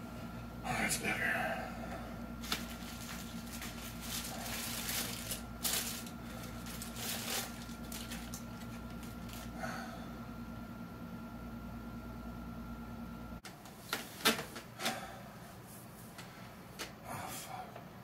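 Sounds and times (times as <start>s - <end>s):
paper wrapper crinkling: 2.4s - 9.5s.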